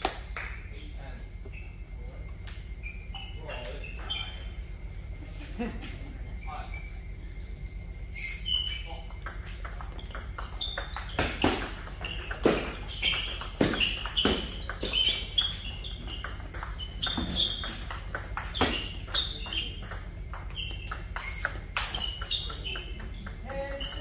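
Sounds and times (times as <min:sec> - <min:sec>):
ball bouncing on table: 0:09.1 - 0:24.0
ball clicking off paddles: 0:09.1 - 0:24.0.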